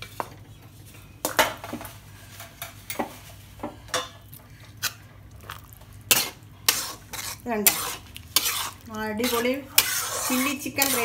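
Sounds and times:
metal spatula scraping a wok: 0:06.1 - 0:11.0.

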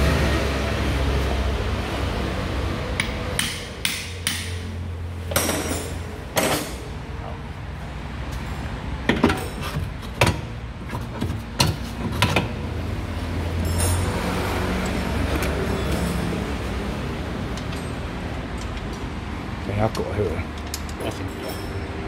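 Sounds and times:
sharp metallic knocks: 0:03.0 - 0:04.7.

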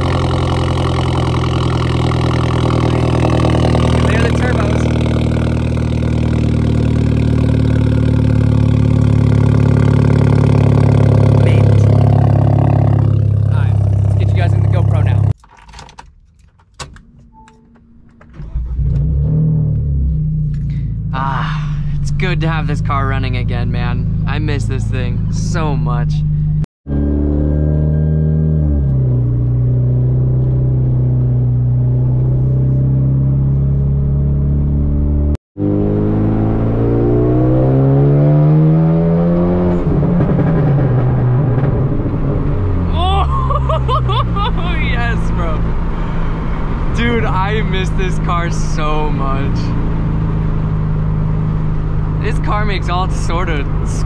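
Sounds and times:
car engine droning: 0:00.0 - 0:15.4, 0:16.5 - 0:54.0
car exhaust idling: 0:00.0 - 0:15.4.

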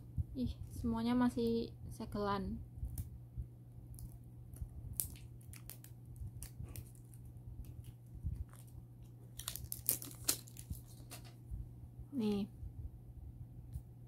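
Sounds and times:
plastic seal crinkling: 0:05.0 - 0:11.3.

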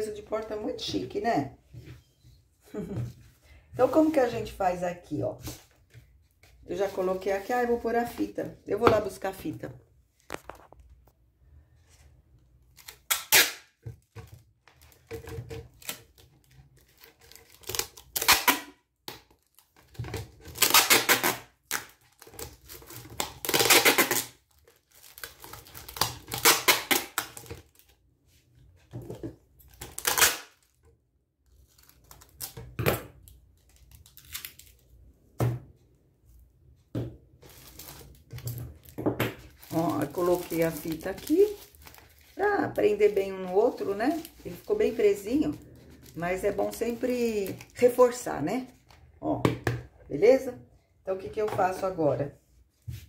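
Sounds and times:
packing tape pulled off roll: 0:20.4 - 0:27.4
plastic bottles handling: 0:37.0 - 0:48.2.

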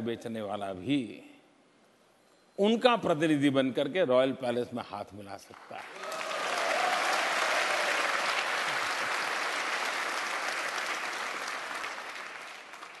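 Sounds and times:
large audience applauding: 0:05.6 - 0:13.0.

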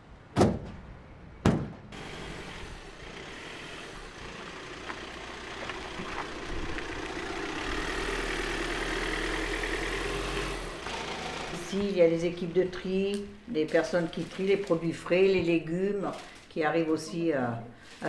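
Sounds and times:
truck engine running: 0:01.9 - 0:12.6.

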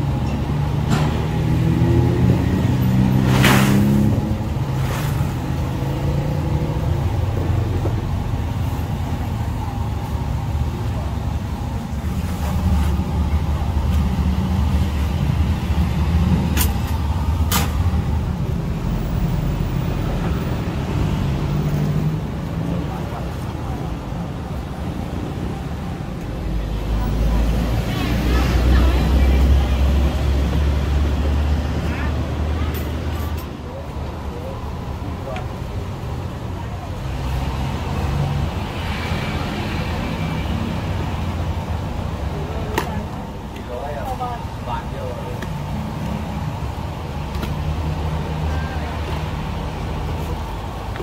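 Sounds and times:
road traffic: 0:00.0 - 0:51.0
vehicle engine rumbling: 0:00.0 - 0:51.0.

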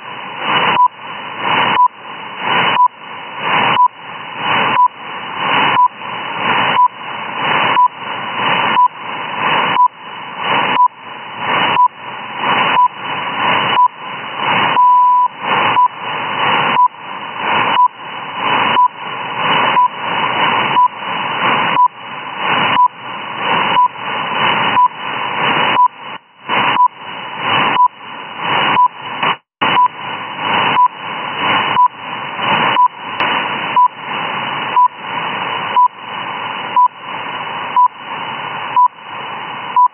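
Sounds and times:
radio static hiss: 0:00.0 - 0:39.9
short radio beeps: 0:12.7 - 0:13.0, 0:14.7 - 0:16.0, 0:32.7 - 0:33.0.

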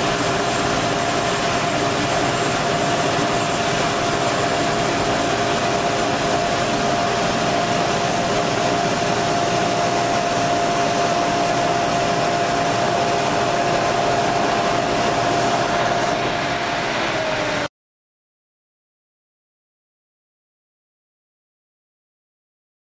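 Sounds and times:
combine harvester running: 0:00.0 - 0:17.7
constant machine whine: 0:00.0 - 0:17.7.

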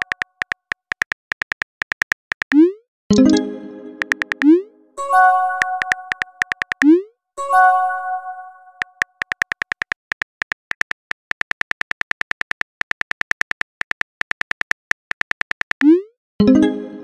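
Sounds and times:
phone keyboard clicks: 0:00.0 - 0:02.6, 0:04.0 - 0:04.6, 0:05.6 - 0:07.0, 0:08.8 - 0:15.9.

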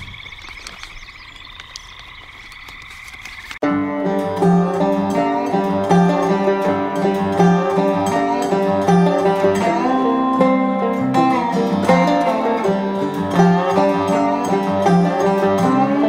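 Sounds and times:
bluegrass plucked string music: 0:03.6 - 0:16.0.

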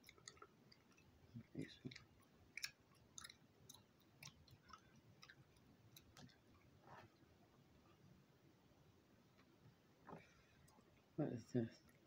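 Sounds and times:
chewing gum smacking: 0:00.0 - 0:06.7.

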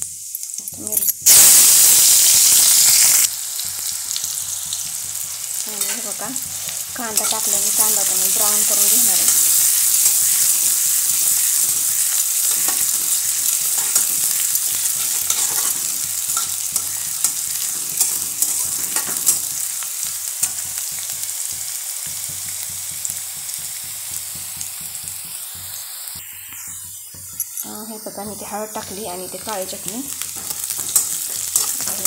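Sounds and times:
onions sizzling in hot oil: 0:00.0 - 0:32.0
metal spatula scraping pan: 0:04.7 - 0:19.8, 0:30.2 - 0:32.0.

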